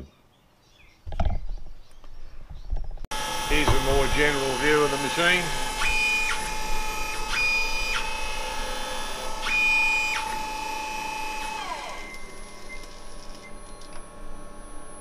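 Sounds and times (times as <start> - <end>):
higher machine whine: 3.1 - 15.0
milling machine whine: 3.1 - 15.0.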